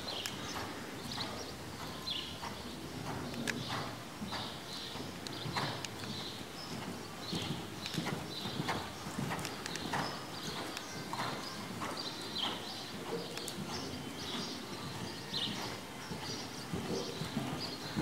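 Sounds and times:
horse hoofbeats on sand: 0.0 - 18.0.

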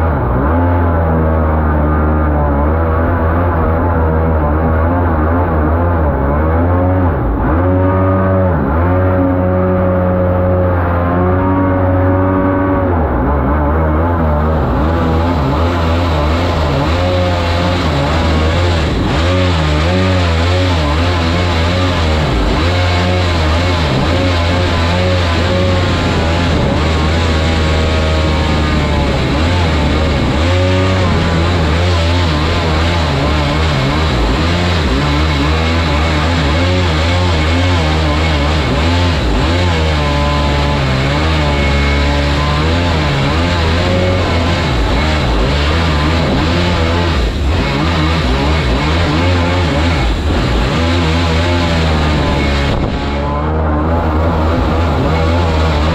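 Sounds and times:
boat engine revving: 0.0 - 55.9.

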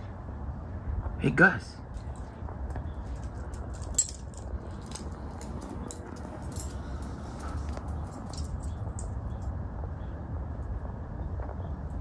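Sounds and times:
collar tags jingling: 1.9 - 9.6
dog claws clicking on concrete: 2.0 - 9.5.

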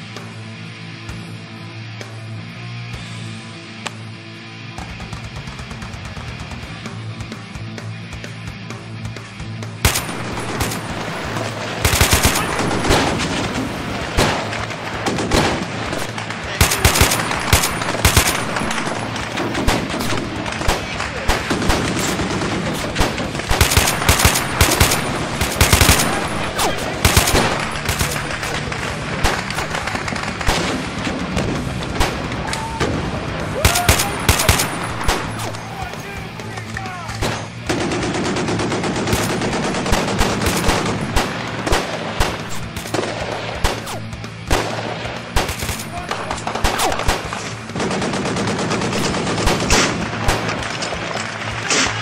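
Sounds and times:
automatic rifle fire bursts: 9.8 - 35.7, 37.2 - 52.0
single gunshots: 9.9 - 35.6, 39.0 - 47.5.

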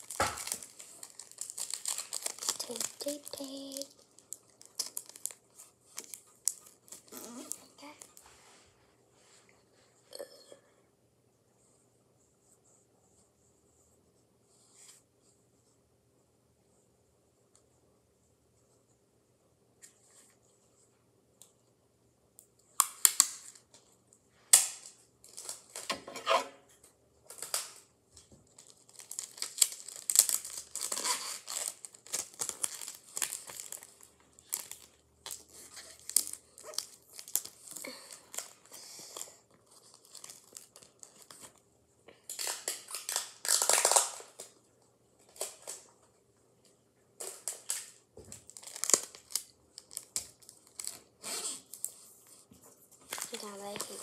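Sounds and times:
paper crinkling: 0.0 - 8.2, 27.2 - 41.6, 47.2 - 54.0
adhesive tape tearing: 29.4 - 31.7.

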